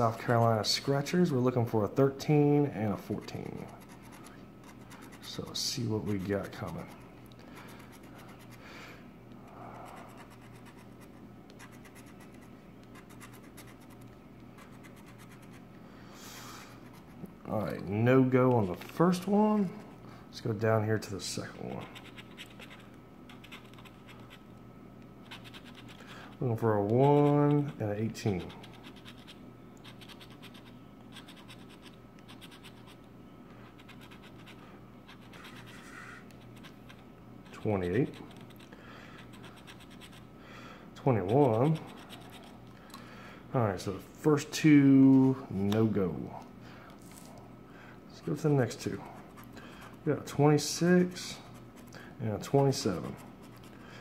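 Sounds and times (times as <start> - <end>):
faint low hum: 0.0 - 54.0
scratching lottery ticket coating: 2.9 - 8.6, 25.2 - 33.0, 33.7 - 40.3, 41.0 - 42.6.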